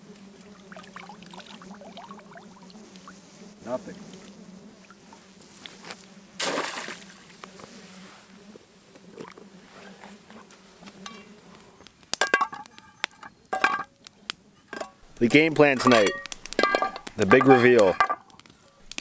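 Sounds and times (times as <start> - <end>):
water splash: 6.4 - 7.1
metal cookware clinking: 12.2 - 13.9, 14.7 - 15.0, 15.7 - 18.2.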